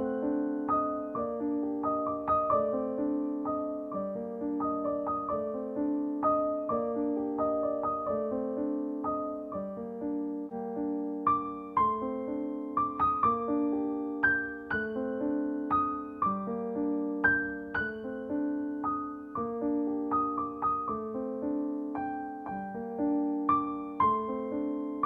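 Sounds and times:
gentle piano melody: 0:00.0 - 0:25.0.

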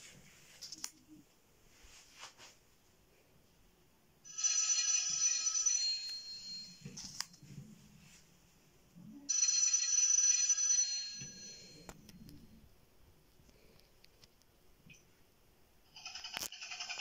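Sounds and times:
telephone bell ringing: 0:04.3 - 0:07.2, 0:09.3 - 0:11.9, 0:16.0 - 0:17.0.

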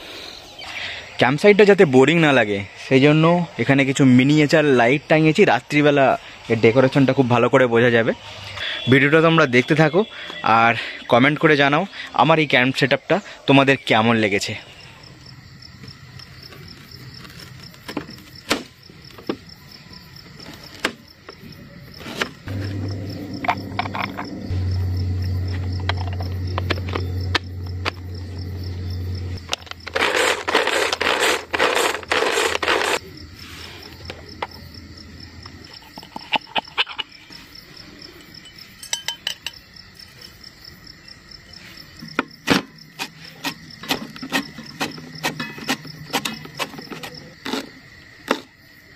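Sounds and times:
crickets chirping: 0:00.0 - 0:48.9
low steady hum: 0:22.5 - 0:29.5.

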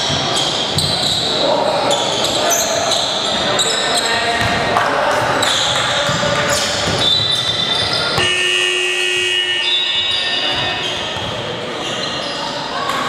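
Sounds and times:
held signal tone: 0:08.2 - 0:10.5.

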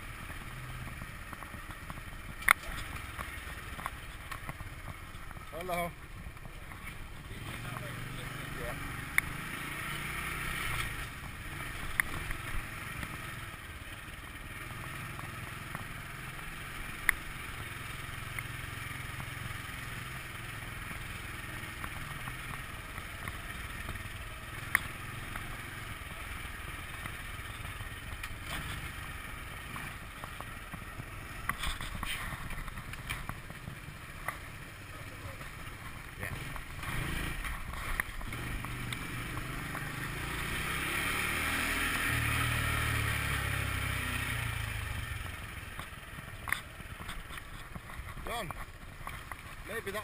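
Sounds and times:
scooter engine running: 0:00.0 - 0:50.0
sharp clicks: 0:24.6 - 0:25.6
clatter: 0:45.2 - 0:50.0.

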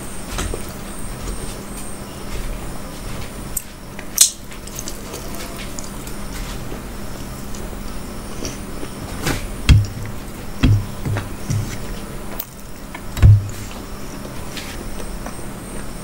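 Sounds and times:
steady low hum: 0:00.0 - 0:16.0
chewing: 0:04.5 - 0:09.0.

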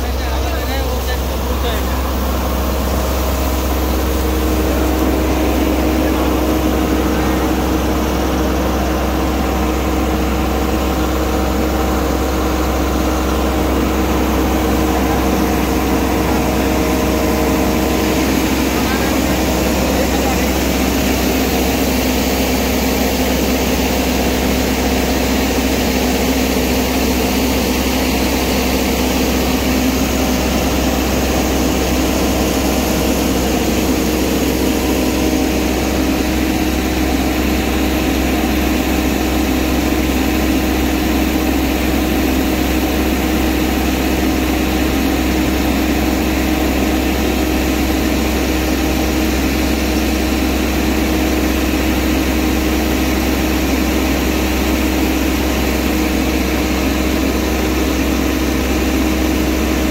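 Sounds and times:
auger pouring grain into trailer: 0:00.0 - 0:59.9
combine harvester engine droning: 0:00.0 - 0:59.9.

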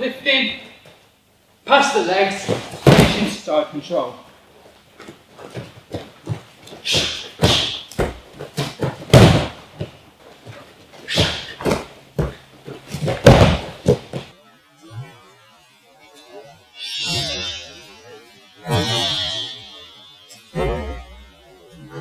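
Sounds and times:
bodies thudding on padded mats: 0:02.4 - 0:03.4, 0:05.0 - 0:14.3.

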